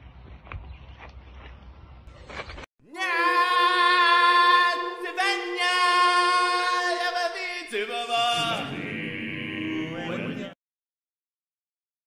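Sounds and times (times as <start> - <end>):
person singing long steady notes: 2.9 - 10.6.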